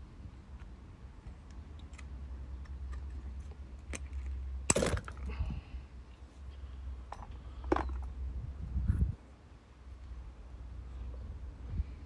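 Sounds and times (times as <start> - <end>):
low steady hum: 0.0 - 12.0
small metal clicks and scraping: 0.6 - 5.3.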